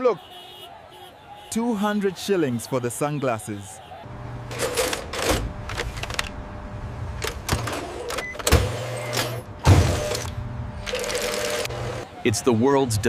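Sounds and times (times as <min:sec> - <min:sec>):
low motor hum: 0:04.1 - 0:12.0
mechanical clicks and clunks: 0:04.5 - 0:06.4, 0:07.2 - 0:11.8.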